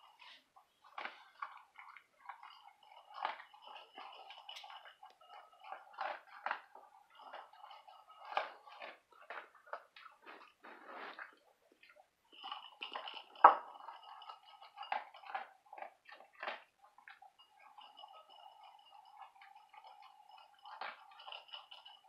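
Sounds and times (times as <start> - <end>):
dog crunching dry kibble: 0.8 - 12.0, 12.7 - 17.2.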